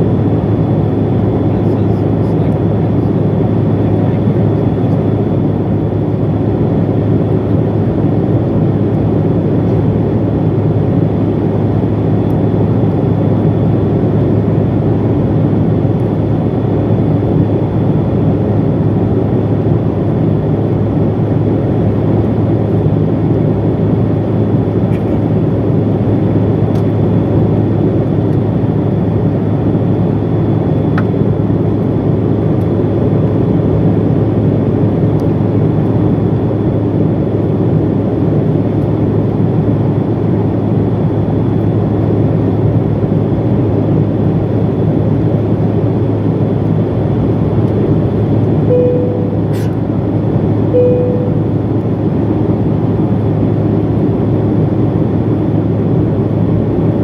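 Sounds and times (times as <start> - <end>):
jet engine drone: 0.0 - 57.0
high whine: 48.6 - 52.5.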